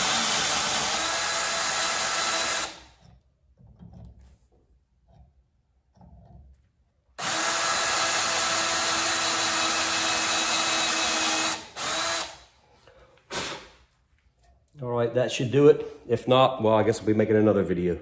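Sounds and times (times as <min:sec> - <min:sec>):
cordless drill boring metal: 0:00.0 - 0:03.1, 0:07.2 - 0:12.5.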